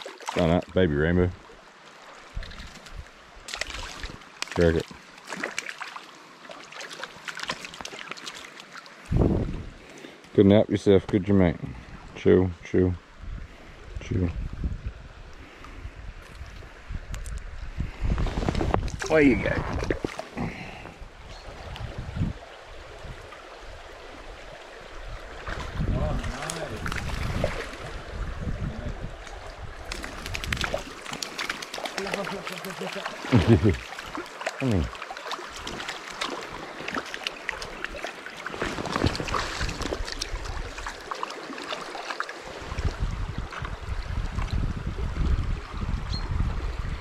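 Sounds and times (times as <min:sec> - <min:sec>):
water splashing: 0:00.0 - 0:00.7, 0:01.7 - 0:09.2, 0:25.3 - 0:28.4, 0:29.1 - 0:44.6
stream running over gravel: 0:00.0 - 0:11.6, 0:18.0 - 0:45.9.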